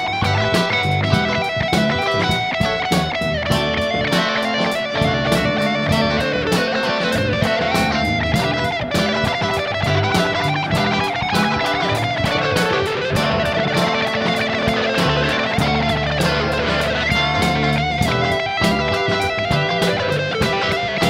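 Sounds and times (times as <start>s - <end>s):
bass guitar: 0.0s - 21.0s
electric guitar: 0.0s - 21.0s
steady drum beat: 0.0s - 21.0s.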